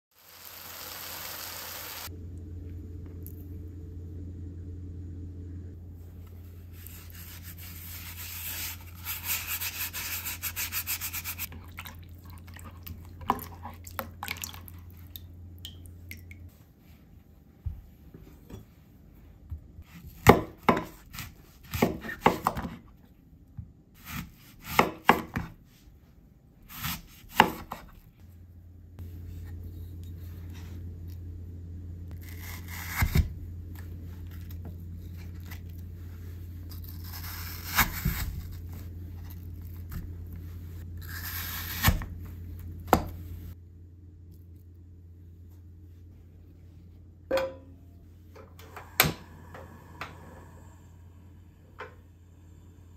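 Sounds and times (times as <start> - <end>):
apple slices sizzling in butter: 0.1 - 2.1.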